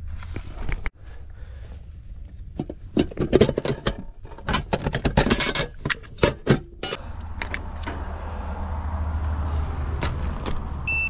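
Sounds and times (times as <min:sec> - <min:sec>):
clicks and rattles of tools: 0:02.5 - 0:08.0.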